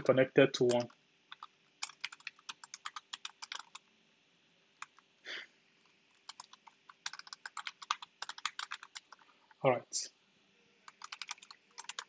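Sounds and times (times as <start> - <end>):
typing on a keyboard: 0.6 - 3.8, 6.2 - 9.6, 10.9 - 12.0.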